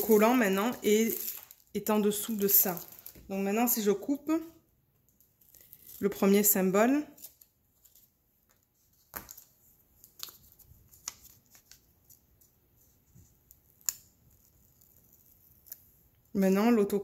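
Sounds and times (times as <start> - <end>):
paper rustling: 7.1 - 15.8.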